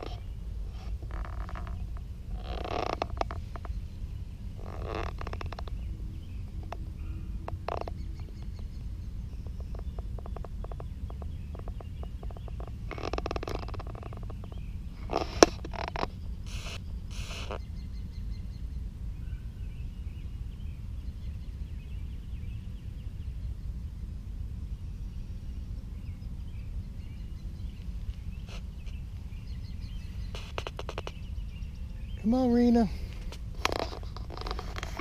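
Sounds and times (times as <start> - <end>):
rustling: 0.0 - 5.8, 11.5 - 17.6, 30.0 - 31.2, 32.2 - 35.0
faint birds chirping: 0.0 - 35.0
wind rumble on microphone: 0.0 - 35.0.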